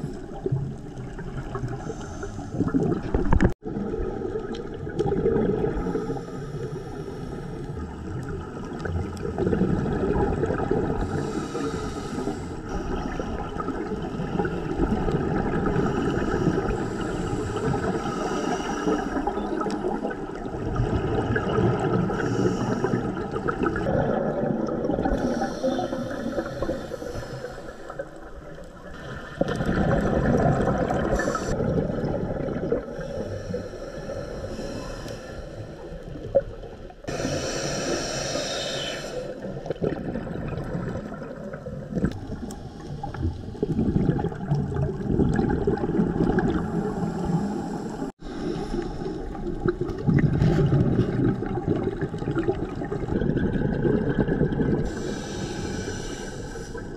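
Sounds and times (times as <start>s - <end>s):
bubbles gurgling underwater: 0.0s - 6.3s, 7.6s - 11.6s, 12.7s - 33.8s, 39.3s - 55.2s
diver breathing through regulator: 5.8s - 7.8s, 11.0s - 13.5s, 15.7s - 20.3s, 22.1s - 23.8s, 25.0s - 28.3s, 30.9s - 31.6s, 32.8s - 36.2s, 37.1s - 39.6s, 42.3s - 44.0s, 46.5s - 49.4s, 54.8s - 56.9s.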